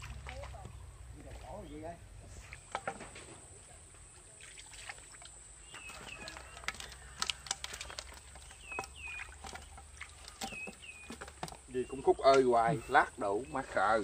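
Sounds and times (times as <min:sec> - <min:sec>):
water trickling and splashing: 0:00.0 - 0:14.0
bird chirping: 0:05.6 - 0:14.0.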